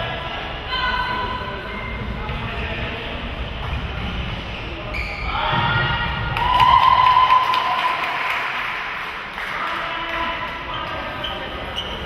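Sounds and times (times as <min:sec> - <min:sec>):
sneakers squeaking on court floor: 0:04.5 - 0:05.3, 0:10.7 - 0:12.0.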